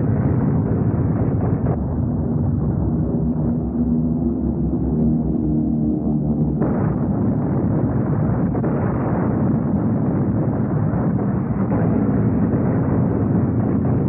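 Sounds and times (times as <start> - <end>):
aircraft roaring: 0.0 - 14.0
anti-aircraft gunfire crackle: 6.4 - 14.0.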